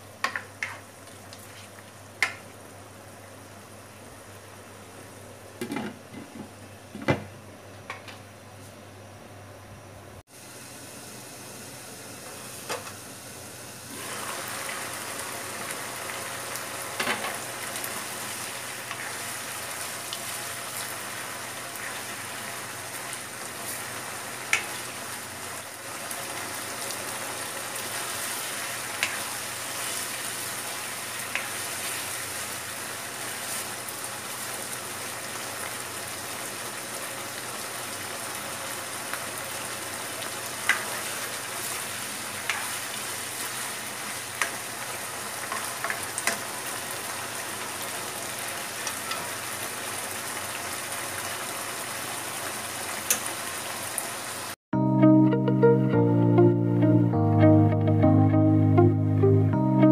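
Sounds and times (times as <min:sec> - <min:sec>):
meat sizzling in a wok: 0:10.3 - 0:54.6.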